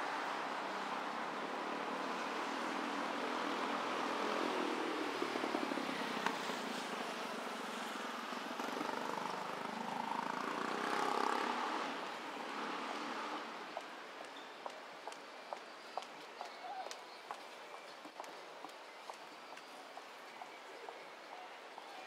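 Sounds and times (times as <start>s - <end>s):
street traffic passing: 0.0s - 22.0s.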